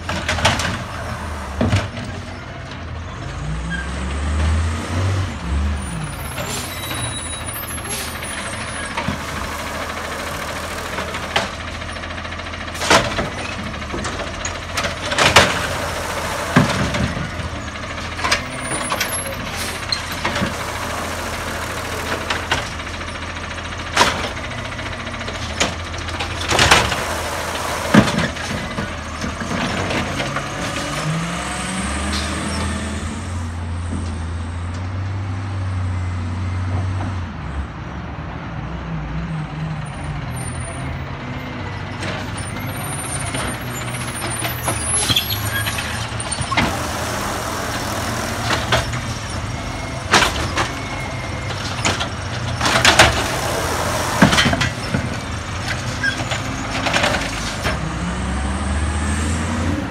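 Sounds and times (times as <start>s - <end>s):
garbage truck engine running: 0.0s - 3.6s, 4.3s - 34.5s, 40.8s - 59.9s
trash carts banging and clattering: 0.0s - 34.9s, 40.5s - 59.9s.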